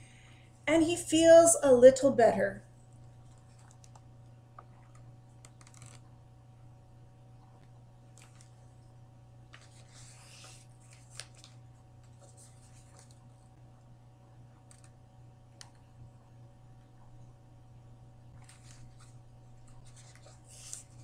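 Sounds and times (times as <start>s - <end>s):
low steady hum: 0.0s - 21.0s
page turning: 3.2s - 6.1s, 8.1s - 8.7s, 9.5s - 13.4s, 14.7s - 15.0s, 18.4s - 21.0s.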